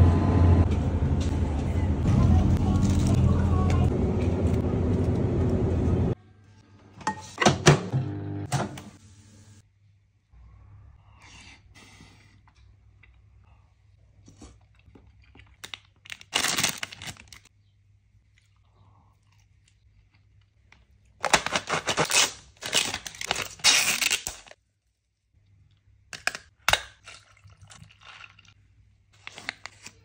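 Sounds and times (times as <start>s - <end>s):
plastic wrapper crinkling: 15.6s - 17.5s, 21.2s - 24.6s.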